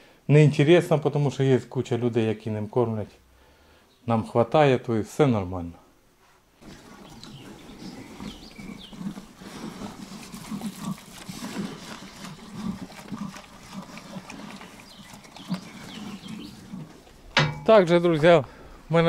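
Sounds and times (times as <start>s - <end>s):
pigs grunting: 6.6s - 17.2s.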